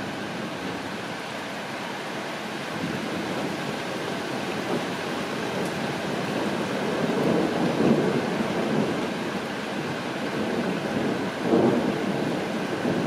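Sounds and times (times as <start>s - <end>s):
steady rain: 0.0s - 13.0s
thunder rumble: 5.5s - 9.2s, 9.8s - 13.0s.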